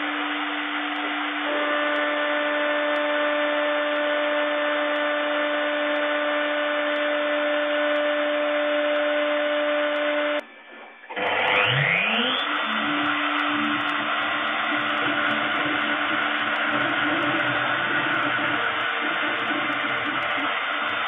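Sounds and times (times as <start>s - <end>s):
milling spindle hum and whine: 0.0s - 21.0s
spindle spinning up: 11.1s - 21.0s.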